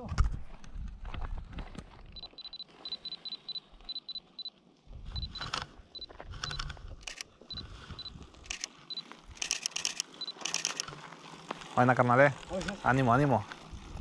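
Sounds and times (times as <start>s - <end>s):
camera focus beeps: 2.2s - 4.5s, 5.1s - 10.9s
camera shutter clicks: 5.2s - 5.7s, 6.4s - 7.6s, 8.4s - 11.0s.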